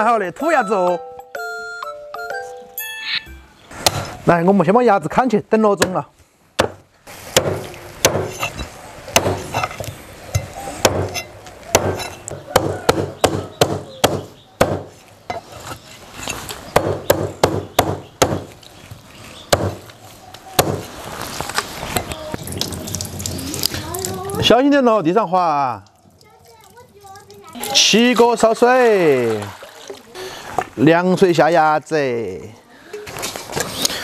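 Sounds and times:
cleaver chopping on wooden block: 0:06.6 - 0:06.8, 0:07.4 - 0:08.5, 0:09.2 - 0:09.7, 0:10.4 - 0:14.9, 0:16.8 - 0:18.5, 0:19.5 - 0:19.8, 0:20.6 - 0:20.9.

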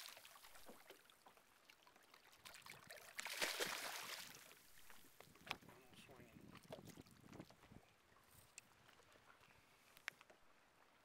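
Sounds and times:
fish splashing in water: 0:02.0 - 0:05.0.

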